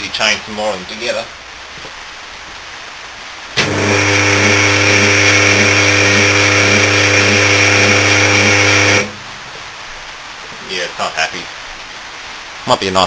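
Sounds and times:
loud electrical motor hum: 3.6s - 9.3s
pulsing beat in hum: 3.7s - 9.1s.

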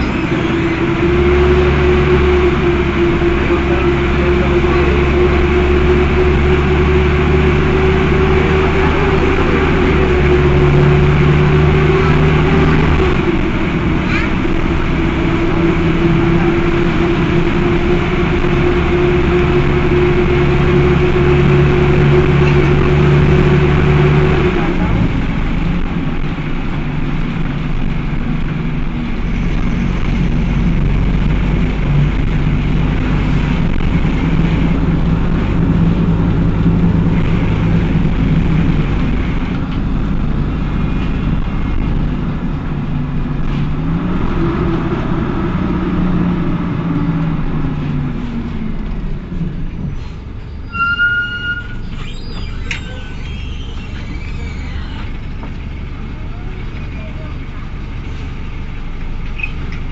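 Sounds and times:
bus diesel engine running: 0.0s - 59.9s
high squeal: 50.0s - 55.5s.

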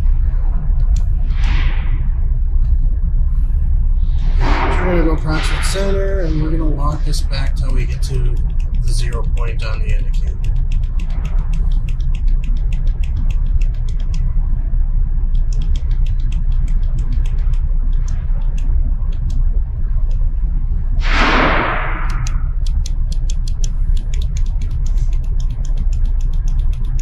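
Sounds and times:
saw low hum: 0.0s - 27.0s
sharp quick clicks: 7.6s - 14.3s, 15.2s - 19.5s, 21.0s - 27.0s.

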